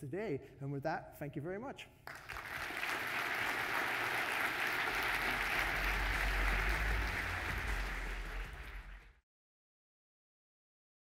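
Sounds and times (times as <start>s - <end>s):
audience applauding: 2.1s - 9.2s
low rumble: 5.1s - 9.2s.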